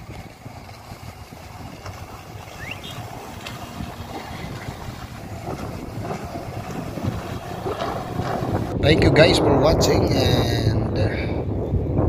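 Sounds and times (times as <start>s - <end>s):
jet ski engine rumbling: 0.0s - 11.9s
short rising chirp: 2.6s - 3.1s.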